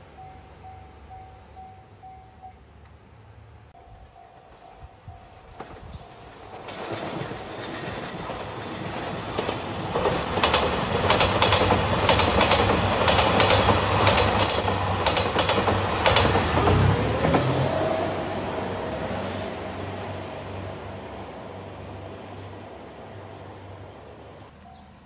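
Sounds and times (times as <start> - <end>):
diesel train rumble and drone: 0.0 - 25.0
wheels clattering over rail joints: 5.6 - 17.6.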